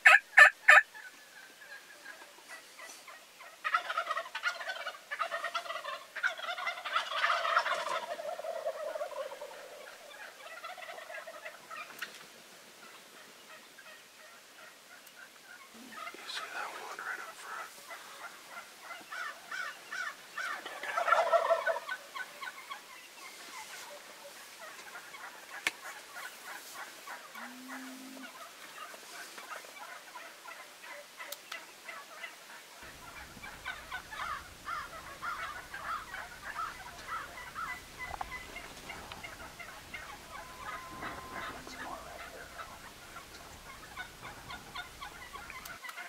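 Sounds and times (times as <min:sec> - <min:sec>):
turkey gobble: 0:00.0 - 0:46.0
turkeys calling rapidly: 0:00.0 - 0:46.0.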